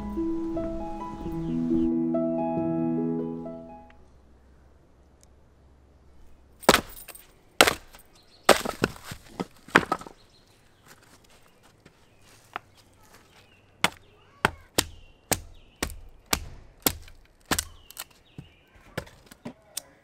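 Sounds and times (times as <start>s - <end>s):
hatchet chopping wood: 6.6s - 10.2s, 13.8s - 19.4s.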